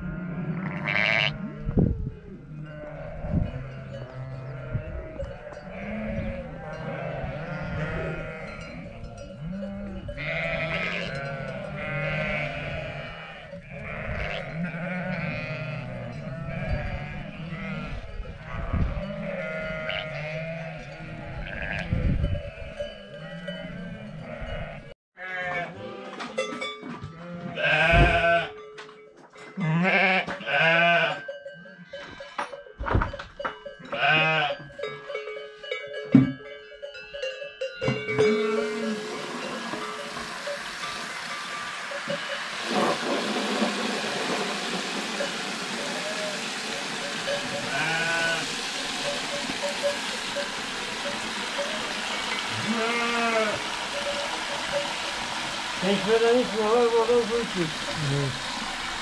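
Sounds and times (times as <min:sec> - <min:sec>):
sheep and goats bleating: 0:00.0 - 0:26.4, 0:27.1 - 0:28.6, 0:29.6 - 0:32.4, 0:33.9 - 0:34.7, 0:38.1 - 0:40.7, 0:45.3 - 0:58.4.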